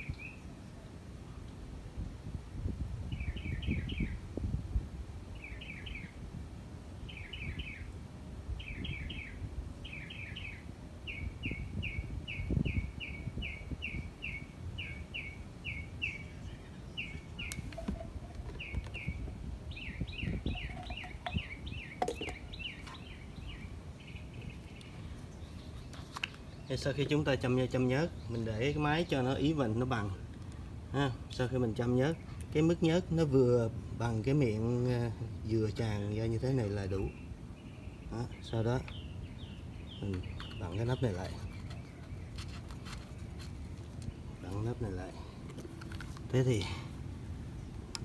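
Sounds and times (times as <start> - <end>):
small bird chirping: 8.6 - 29.4, 36.9 - 45.1.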